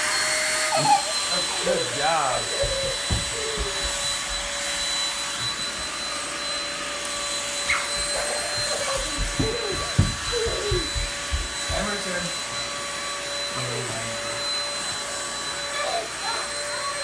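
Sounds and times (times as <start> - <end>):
handheld vacuum motor whine: 0.0 - 17.0
low thumps: 8.0 - 11.9.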